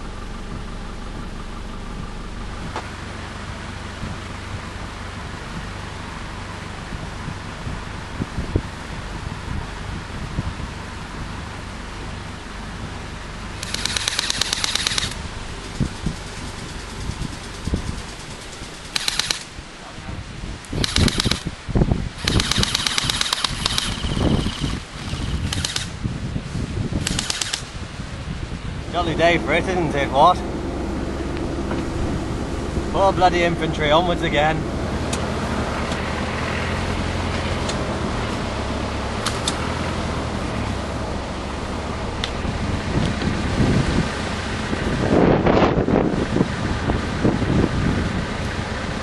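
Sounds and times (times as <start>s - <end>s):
wind buffeting microphone: 0.0s - 49.0s
airsoft guns firing bursts: 13.6s - 15.2s, 16.7s - 19.5s, 20.8s - 21.5s, 22.2s - 26.0s, 27.1s - 27.7s
sharp clicks: 13.6s - 19.5s, 20.6s - 21.5s, 22.2s - 26.0s, 27.0s - 27.7s, 39.2s - 39.6s.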